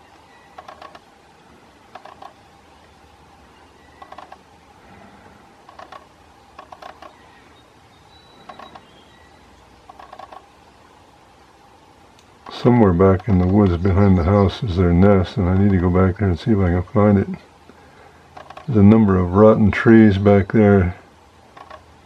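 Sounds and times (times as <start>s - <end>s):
woodpecker knocking on wood: 0.5s - 1.1s, 1.9s - 2.4s, 4.0s - 4.5s, 5.6s - 7.4s, 8.4s - 9.0s, 9.8s - 10.6s, 12.4s - 13.9s, 18.3s - 19.0s, 21.5s - 21.9s.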